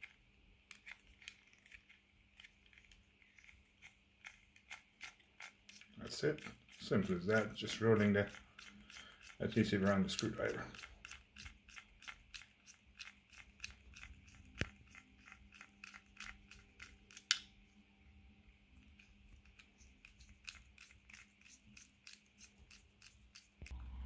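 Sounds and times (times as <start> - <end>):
screwdriver scraping adhesive tape: 0.0 - 17.4, 19.0 - 23.7.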